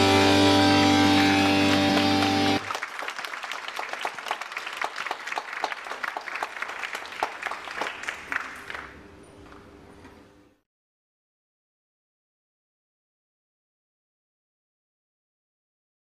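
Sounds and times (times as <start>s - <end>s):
music: 0.0s - 2.6s
small audience applauding: 0.0s - 9.0s.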